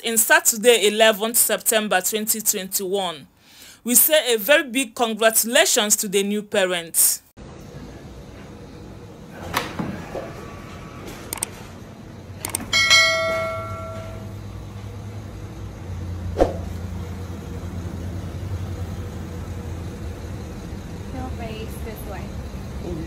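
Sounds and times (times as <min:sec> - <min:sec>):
steady low hum: 0:07.4 - 0:23.0
bell-like ringing tone: 0:12.7 - 0:14.4.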